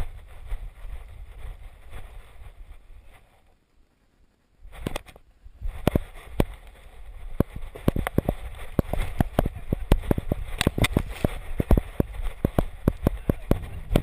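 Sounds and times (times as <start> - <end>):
wind rumble on microphone: 0.0 - 3.4, 4.6 - 14.0
camera knocking and rattling: 4.8 - 5.2, 5.8 - 6.8, 7.4 - 14.0.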